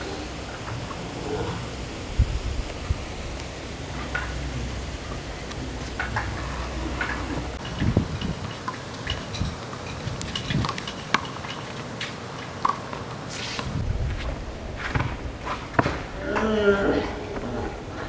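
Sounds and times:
sneakers squeaking on pavement: 7.6 - 13.8.

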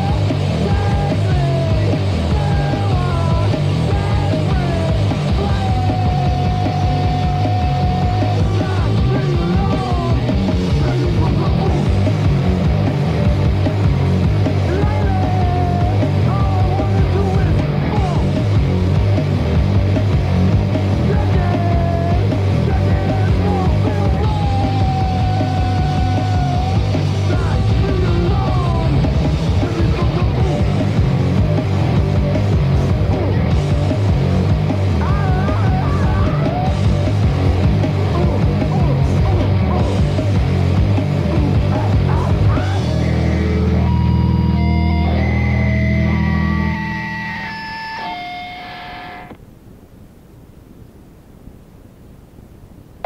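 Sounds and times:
punk rock band playing: 0.0 - 49.4.

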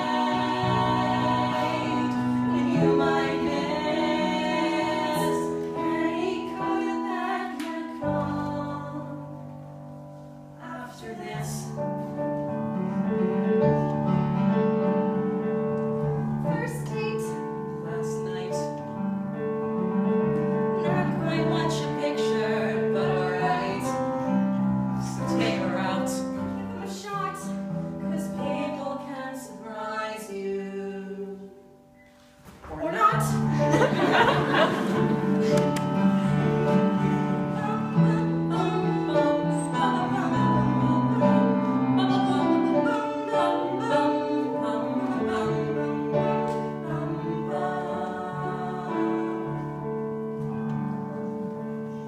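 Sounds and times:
man and woman singing duet: 0.0 - 9.1, 37.4 - 49.7
piano accompaniment: 0.0 - 52.0.

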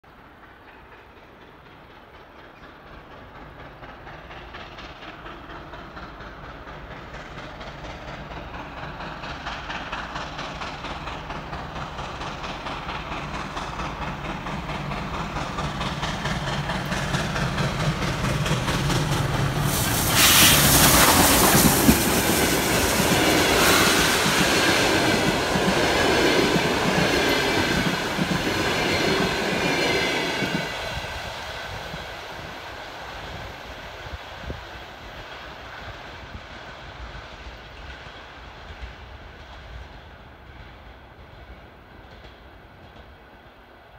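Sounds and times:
train wheels clattering: 0.1 - 32.4
steam locomotive exhaust beats: 0.1 - 43.4.

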